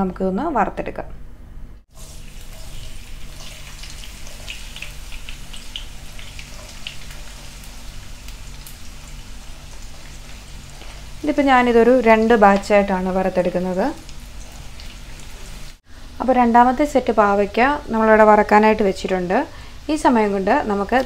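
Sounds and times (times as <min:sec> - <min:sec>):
deep-frying sizzle and pops: 0:01.9 - 0:15.8.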